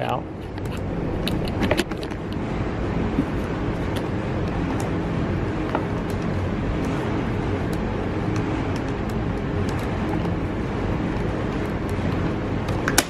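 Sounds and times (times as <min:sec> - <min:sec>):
machinery rumble: 0:00.0 - 0:13.0.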